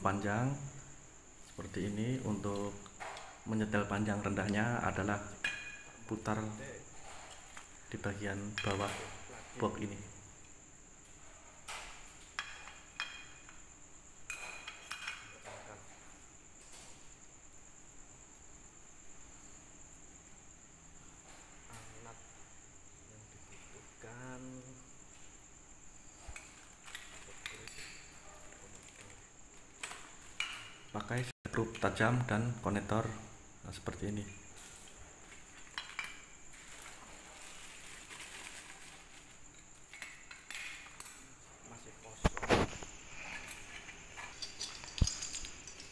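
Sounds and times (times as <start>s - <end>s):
lamp housings handling noise: 5.3s - 6.2s, 26.2s - 28.2s, 29.7s - 31.0s, 34.5s - 41.2s, 42.2s - 45.9s
small metal parts clinking: 34.6s - 41.2s, 43.1s - 45.9s.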